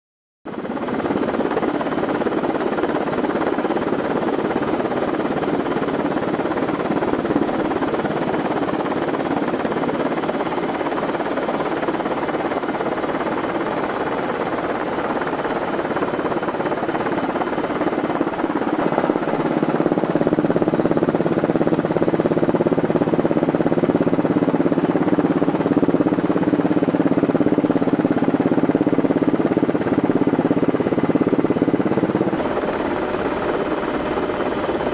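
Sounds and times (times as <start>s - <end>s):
helicopter rotor drone: 0.5s - 34.9s
steady low hum: 16.2s - 34.9s.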